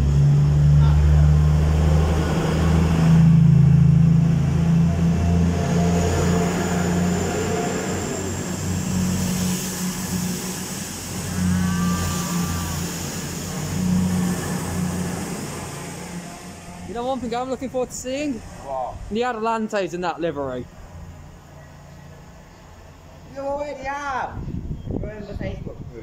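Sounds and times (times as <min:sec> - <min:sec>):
diesel train engines droning: 0:00.0 - 0:23.9
thin high whine: 0:02.2 - 0:19.4.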